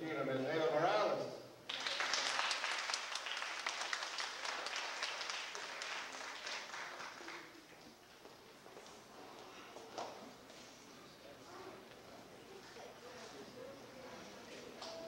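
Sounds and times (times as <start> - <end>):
audience applauding: 1.7 - 8.0.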